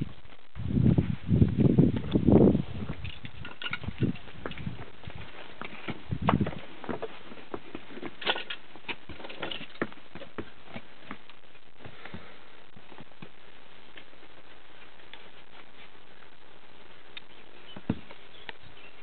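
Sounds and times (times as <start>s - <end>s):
low rustle: 0.0s - 19.0s
hooves clicking on concrete: 3.1s - 12.3s.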